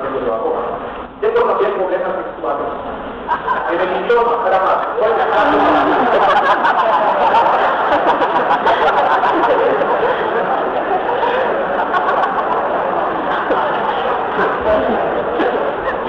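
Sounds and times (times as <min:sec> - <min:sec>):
audience chattering: 0:00.0 - 0:16.0
audience laughing: 0:03.2 - 0:04.2, 0:05.0 - 0:16.0.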